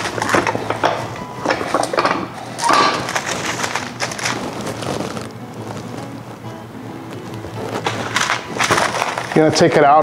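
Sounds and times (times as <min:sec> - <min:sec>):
parchment paper rustling: 0:01.4 - 0:06.4, 0:07.0 - 0:10.0.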